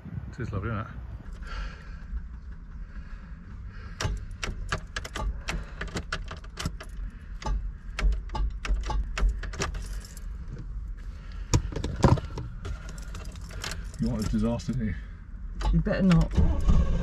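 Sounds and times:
low rumble: 0:00.0 - 0:17.0
keys jangling and clicking: 0:04.0 - 0:10.6, 0:12.6 - 0:14.8.

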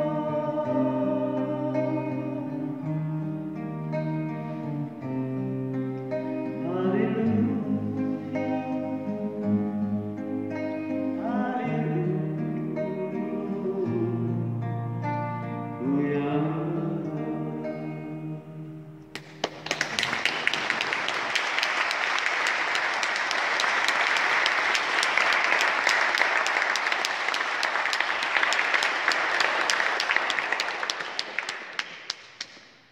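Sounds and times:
voice and acoustic guitars: 0:00.0 - 0:31.8
congregation applauding: 0:19.1 - 0:32.8.

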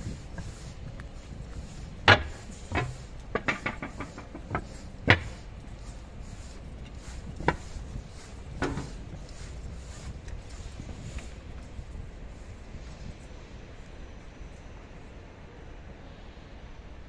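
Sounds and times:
train wheels knocking over rail joints: 0:02.0 - 0:05.5, 0:08.6 - 0:09.1.

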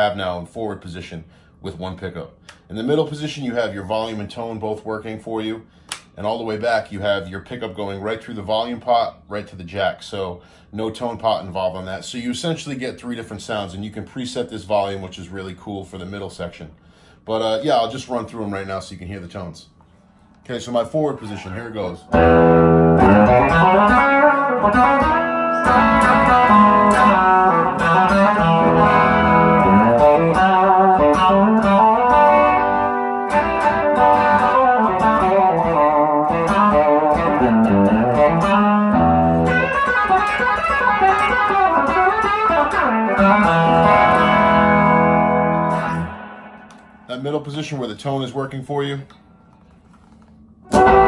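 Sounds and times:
electric guitar notes and chords: 0:22.0 - 0:47.1, 0:50.6 - 0:51.0.

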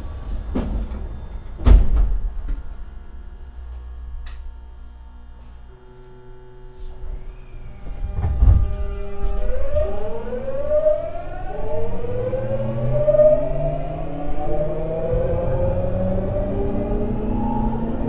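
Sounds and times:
train motor whine rising: 0:03.7 - 0:18.0.

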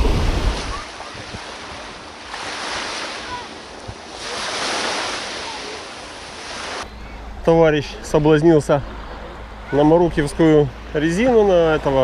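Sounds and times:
wind rumble on microphone: 0:00.0 - 0:01.5
waves washing up pebble shore: 0:00.0 - 0:06.8.

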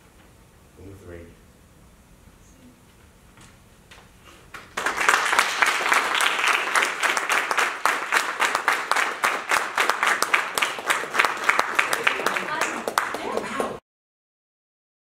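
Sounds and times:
audience applause: 0:04.5 - 0:13.8.

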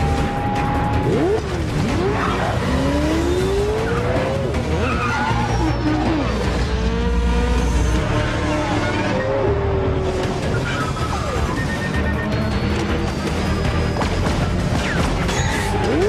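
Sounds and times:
engines revving: 0:00.0 - 0:16.0
low background music: 0:00.0 - 0:16.0
tyres squealing: 0:03.6 - 0:06.4.

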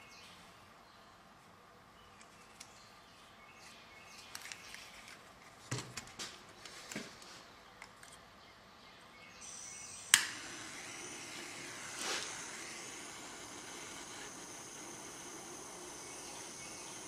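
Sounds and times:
gas torch hissing: 0:09.4 - 0:17.0
igniter click: 0:09.5 - 0:17.0.

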